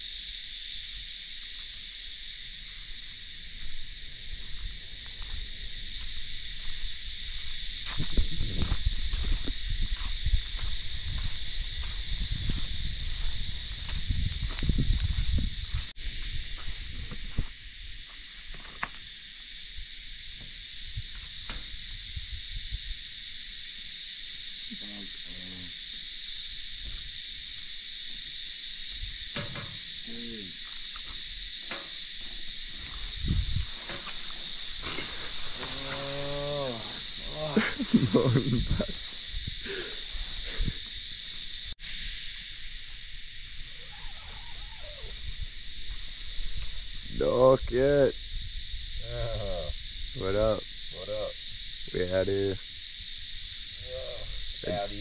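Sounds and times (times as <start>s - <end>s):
high-pitched insect chorus: 0.0s - 55.0s
drawn-out falling calls: 43.5s - 45.6s.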